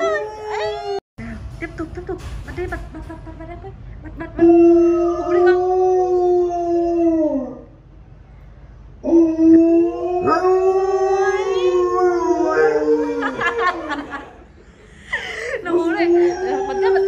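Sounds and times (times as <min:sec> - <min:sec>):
dog howling: 0:00.0 - 0:01.0, 0:04.4 - 0:07.7, 0:09.0 - 0:14.2, 0:16.0 - 0:17.0.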